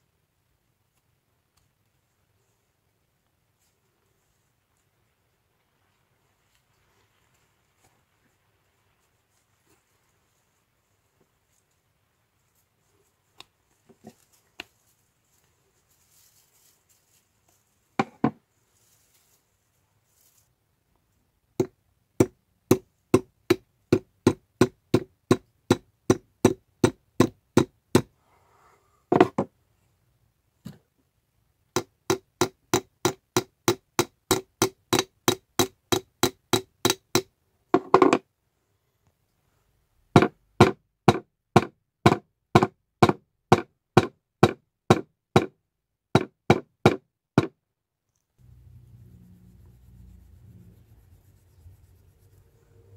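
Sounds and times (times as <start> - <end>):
small hammer tapping chisel: 21.6 - 28.1, 31.7 - 38.2.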